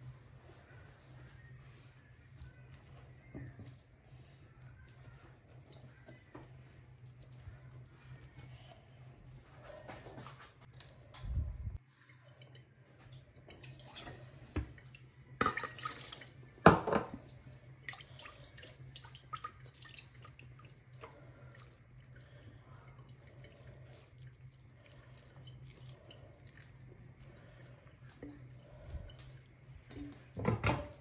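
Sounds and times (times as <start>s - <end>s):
liquid trickling and dripping: 17.2s - 30.4s.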